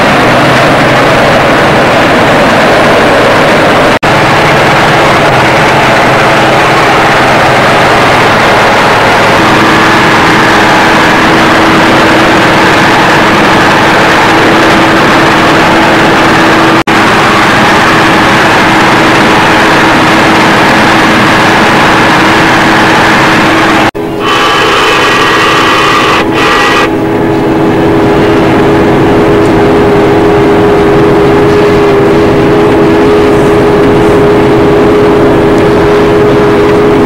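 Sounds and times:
combine harvester engine and threshing: 0.0 - 37.0
steady hum: 0.0 - 37.0.

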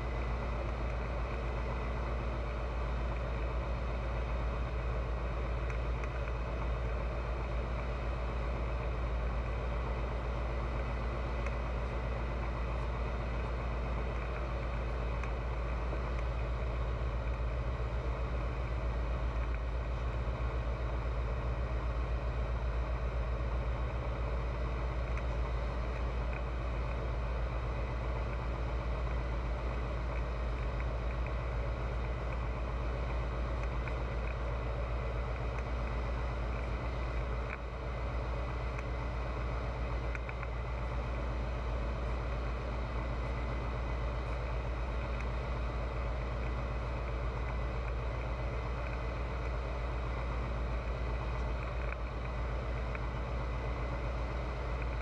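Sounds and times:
light aircraft engine drone: 0.0 - 55.0.

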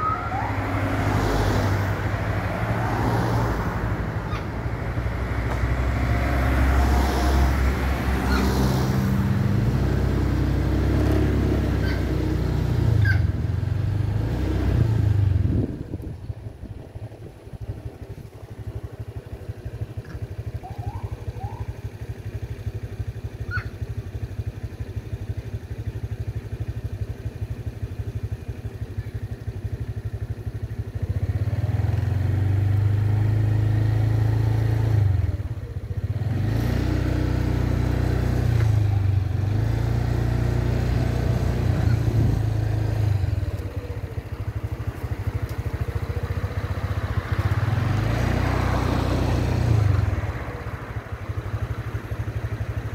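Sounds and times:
vehicle engine idling: 15.1 - 33.4, 37.5 - 52.9.

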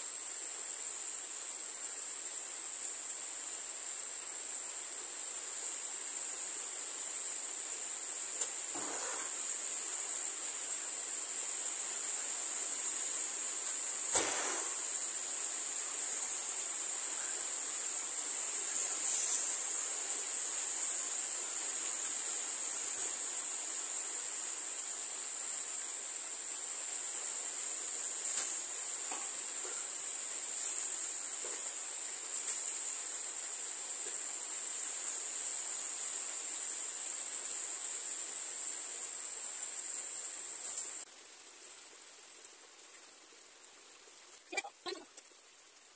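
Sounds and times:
insects chirring: 0.0 - 45.9
rain hiss: 0.0 - 45.9
sharp knock: 14.1 - 14.8.

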